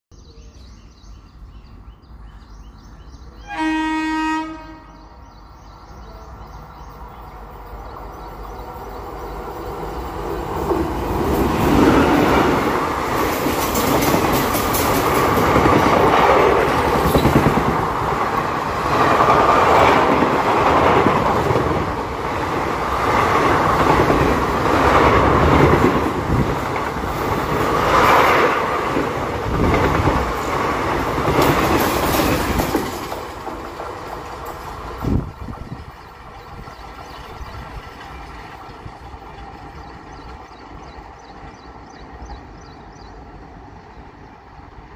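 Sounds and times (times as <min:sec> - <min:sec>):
train rumble: 0:00.3 - 0:44.9
train horn blast: 0:03.4 - 0:05.2
train wheel clatter: 0:07.8 - 0:43.1.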